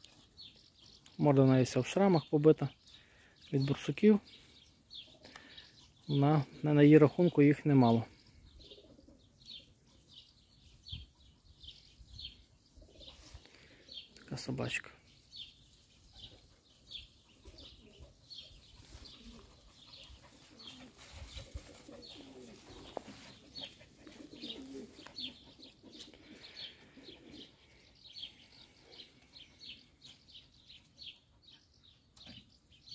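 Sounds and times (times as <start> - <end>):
small birds chirping: 0.0 - 32.9
dove cooing: 8.6 - 9.3, 18.8 - 27.8.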